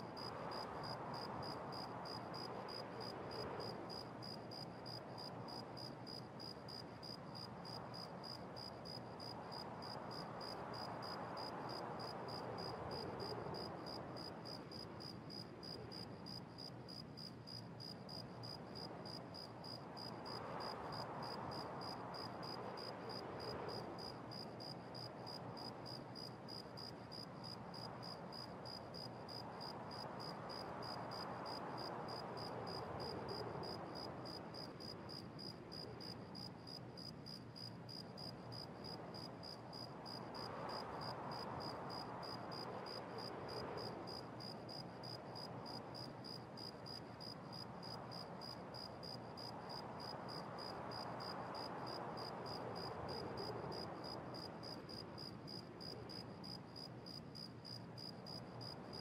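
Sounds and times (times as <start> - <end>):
faint steady hiss: 0.0 - 59.0.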